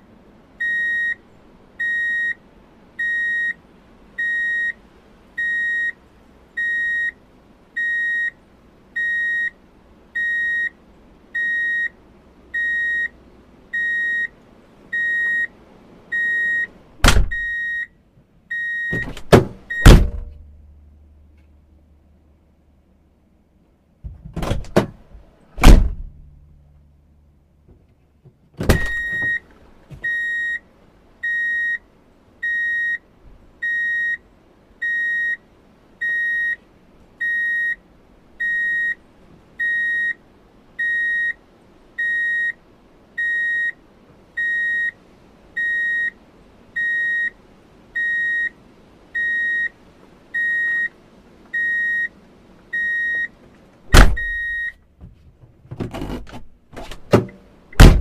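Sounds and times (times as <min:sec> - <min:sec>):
reverse warning beeps: 0:00.6 - 0:01.2, 0:01.8 - 0:02.4, 0:03.0 - 0:03.6, 0:04.2 - 0:04.8, 0:05.4 - 0:06.0, 0:06.6 - 0:07.2, 0:07.8 - 0:08.4, 0:09.0 - 0:09.6, 0:10.2 - 0:10.8, 0:11.4 - 0:12.0, 0:12.6 - 0:13.2, 0:13.8 - 0:14.3, 0:14.9 - 0:15.5, 0:16.1 - 0:16.7, 0:17.3 - 0:17.9, 0:18.5 - 0:19.1, 0:28.8 - 0:29.4, 0:30.0 - 0:30.6, 0:31.2 - 0:31.8, 0:32.4 - 0:33.0, 0:33.6 - 0:34.2, 0:34.8 - 0:35.4, 0:36.0 - 0:36.6, 0:37.2 - 0:37.8, 0:38.4 - 0:39.0, 0:39.6 - 0:40.2, 0:40.8 - 0:41.4, 0:42.0 - 0:42.6, 0:43.2 - 0:43.8, 0:44.4 - 0:45.0, 0:45.6 - 0:46.2, 0:46.8 - 0:47.4, 0:48.0 - 0:48.6, 0:49.2 - 0:49.8, 0:50.4 - 0:50.9, 0:51.6 - 0:52.2, 0:52.8 - 0:53.3, 0:54.2 - 0:54.8
loud thunk: 0:17.0 - 0:17.4, 0:19.0 - 0:20.4, 0:25.6 - 0:26.2, 0:28.6 - 0:29.4, 0:53.9 - 0:54.4, 0:56.8 - 0:58.0
clunks: 0:18.9 - 0:20.5, 0:24.0 - 0:26.4, 0:27.6 - 0:30.2, 0:53.1 - 0:58.0.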